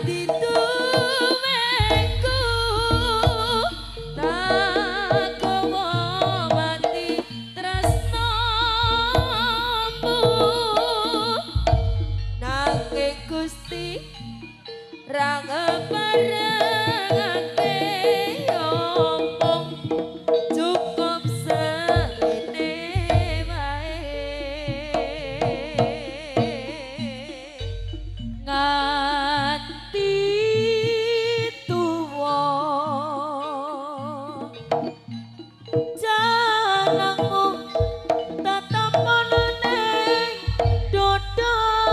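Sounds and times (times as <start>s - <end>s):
drums and percussion: 0.0s - 41.9s
wavering ornamented melody: 0.0s - 41.9s
deep sustained bass tones: 1.8s - 6.5s, 7.7s - 10.8s, 11.5s - 14.6s, 23.0s - 30.6s.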